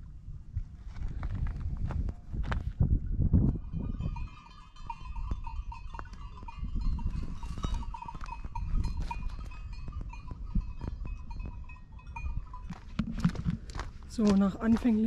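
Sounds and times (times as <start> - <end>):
wind rumbling on microphone: 0.0 - 15.0
distant livestock: 3.7 - 13.8
footsteps on loose rock: 12.7 - 15.0.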